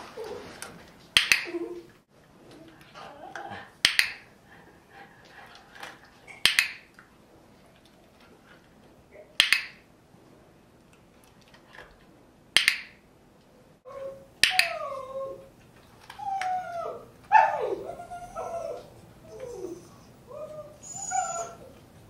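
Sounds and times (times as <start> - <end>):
dog whining: 1.4 - 2.0, 13.9 - 15.5, 16.2 - 21.8
dog-training clicker clicks: 3.8 - 4.2, 6.4 - 6.8, 9.4 - 9.8, 12.6 - 13.0.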